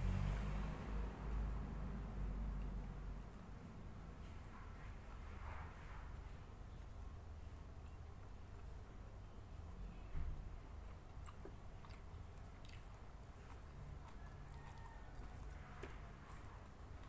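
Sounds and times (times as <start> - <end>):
low steady hum: 0.0 - 17.0
chewing and mouth sounds: 10.3 - 17.0.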